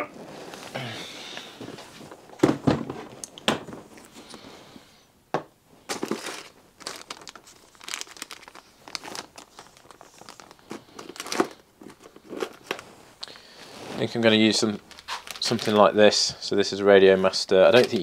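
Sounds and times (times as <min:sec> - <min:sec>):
plastic bags crinkling: 0:05.9 - 0:16.2, 0:17.3 - 0:18.0.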